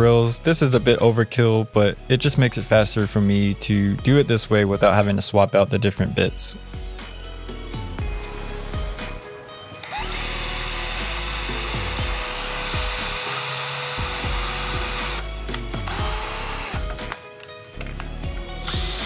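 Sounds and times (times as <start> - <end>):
cordless drill boring: 9.8 - 17.1, 18.6 - 19.0
steady music beat: 11.1 - 17.2.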